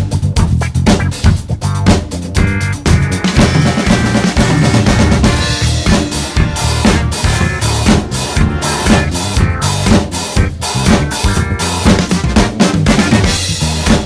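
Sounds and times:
backing track: 0.0 - 14.0
drum kit playing groove: 0.0 - 14.0.

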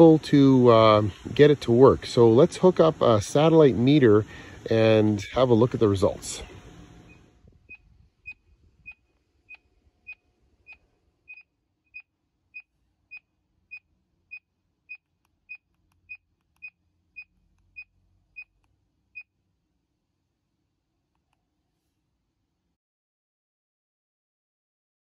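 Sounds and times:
signal meter beeping: 6.4 - 19.3.

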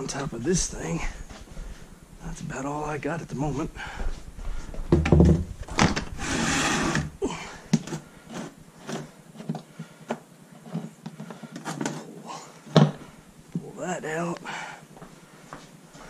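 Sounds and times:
heavy thump: 4.8 - 6.0
knocks and clunks of drain pan: 4.9 - 5.5
scraping slide: 6.2 - 7.1.

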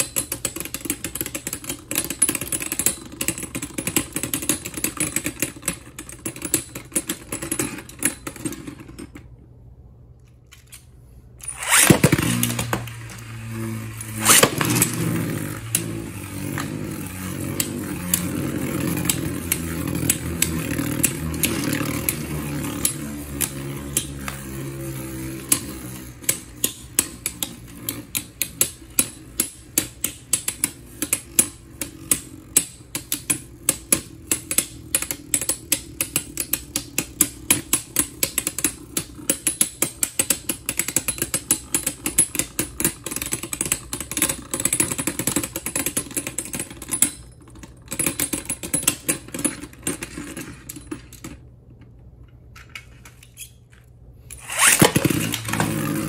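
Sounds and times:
tops clicking against each other: 10.6 - 50.0
spinning tops whirring: 11.3 - 47.3, 54.3 - 56.0
spinning top launch clack: 11.4 - 46.2, 54.3 - 56.0.

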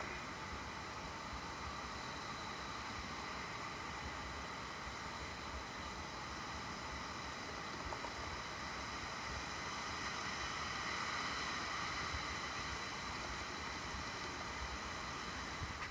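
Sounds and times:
ocean surf hissing: 0.0 - 0.8.

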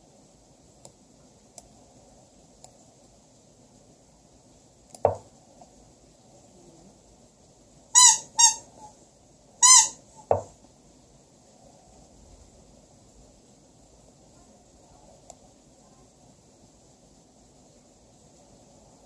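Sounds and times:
squeaky toy squeaks: 8.0 - 8.9, 9.6 - 10.3.

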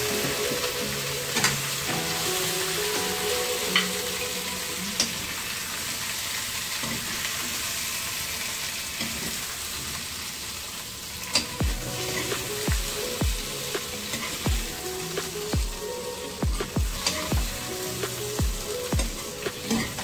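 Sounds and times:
vegetables sizzling in a frying pan: 0.0 - 16.4.

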